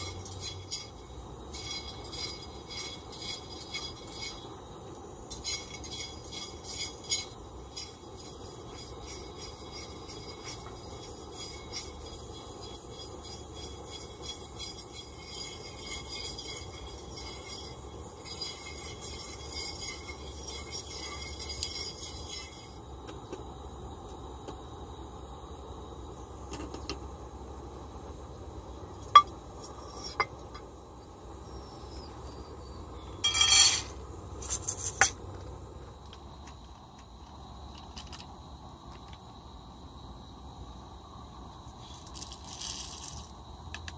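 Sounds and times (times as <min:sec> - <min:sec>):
coffee beans rattling in metal pan: 0:00.0 - 0:04.6, 0:05.3 - 0:22.8, 0:33.2 - 0:35.2, 0:41.8 - 0:43.4
camp stove burner rushing: 0:00.0 - 0:31.1, 0:32.0 - 0:40.1
metal cookware clinking: 0:33.2 - 0:34.0.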